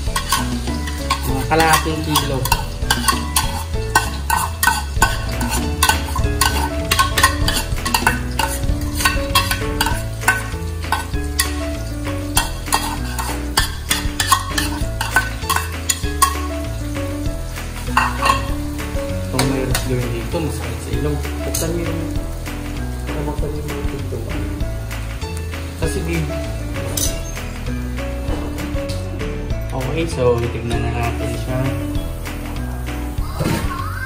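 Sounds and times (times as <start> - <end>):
metal spoon scraping a wok: 0.0 - 16.6, 17.8 - 18.6
background music with bass: 0.0 - 34.0
chilies sizzling in hot oil: 0.0 - 34.0.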